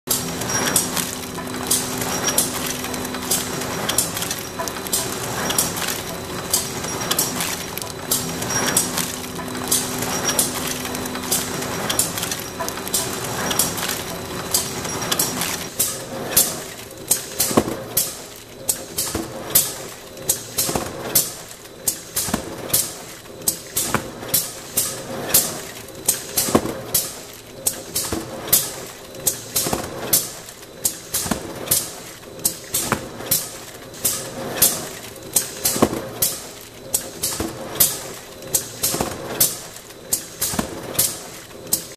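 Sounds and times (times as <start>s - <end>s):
machine humming: 0.1s - 15.8s.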